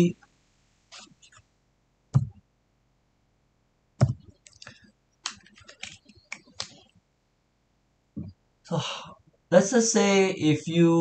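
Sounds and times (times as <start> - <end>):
small clicks and scratchy ticks: 0.2 - 1.5, 4.3 - 7.0
low knocks: 2.2 - 2.4.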